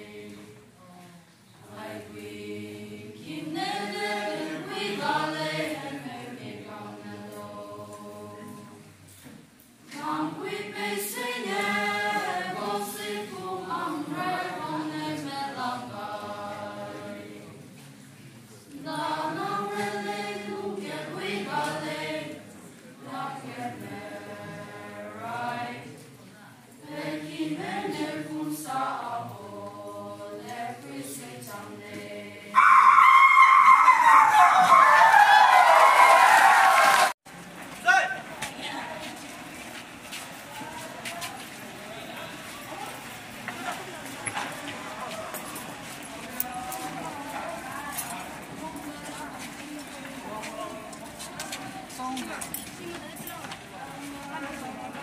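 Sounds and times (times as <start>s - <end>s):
choir singing unaccompanied: 0.0s - 0.9s, 1.6s - 9.1s, 9.8s - 17.9s, 18.6s - 37.2s, 43.2s - 52.0s.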